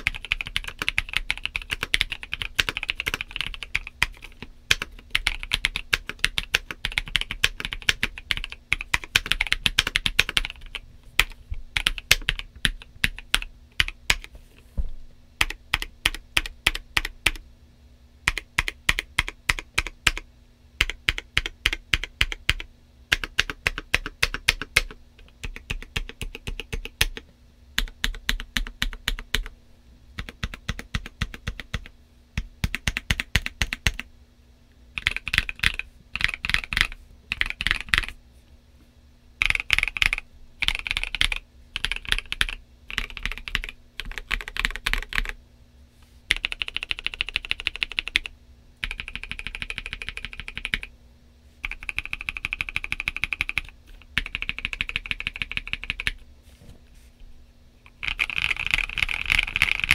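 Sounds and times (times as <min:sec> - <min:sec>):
typing on mechanical keyboard: 0:00.0 - 0:14.3, 0:15.4 - 0:17.4, 0:18.3 - 0:20.2, 0:20.8 - 0:27.2, 0:27.8 - 0:29.5, 0:30.2 - 0:31.9, 0:32.6 - 0:34.0, 0:35.0 - 0:38.1, 0:39.4 - 0:45.4, 0:46.3 - 0:50.9, 0:51.6 - 0:56.2, 0:57.9 - 0:59.9.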